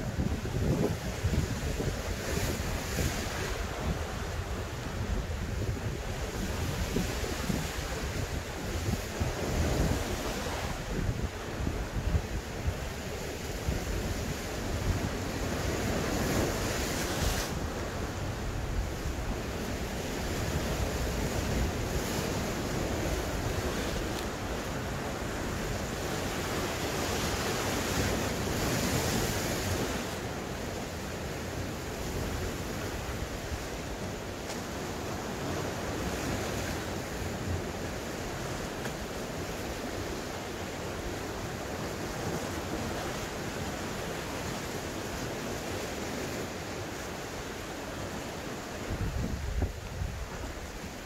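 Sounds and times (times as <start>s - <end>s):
wind buffeting microphone: 0.0s - 30.0s, 48.8s - 51.0s
waves washing against rocks: 0.0s - 51.0s.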